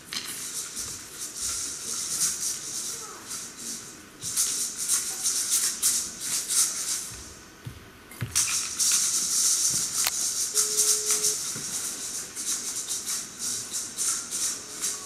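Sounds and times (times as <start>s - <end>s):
hand rattle shaking: 8.4s - 15.0s.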